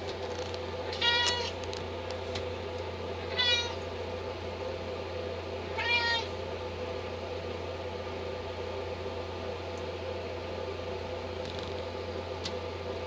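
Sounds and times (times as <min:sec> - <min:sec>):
kittens meowing: 0:03.2 - 0:03.8, 0:05.8 - 0:06.3.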